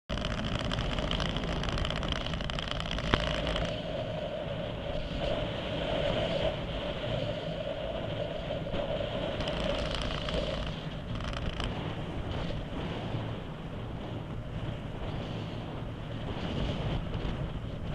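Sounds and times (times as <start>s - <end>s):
rush of air: 0.1s - 13.7s.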